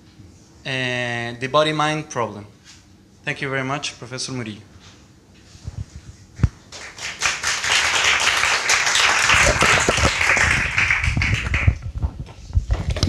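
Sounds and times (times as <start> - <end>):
audience applauding: 6.7 - 11.8.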